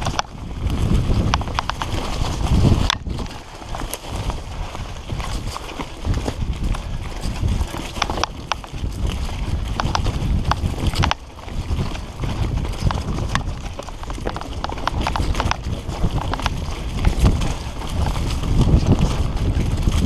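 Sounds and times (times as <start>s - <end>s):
bike rattling clicks and knocks: 0.0s - 20.0s
tyres rumbling on dirt: 0.0s - 20.0s.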